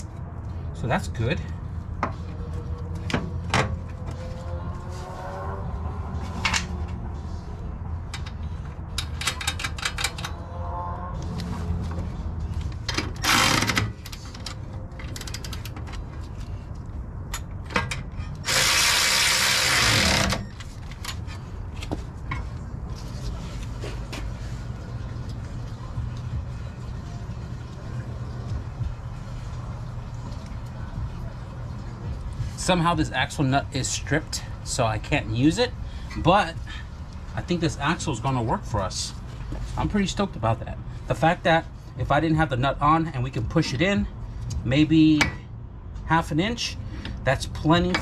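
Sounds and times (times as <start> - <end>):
power tool running: 18.4 - 20.4.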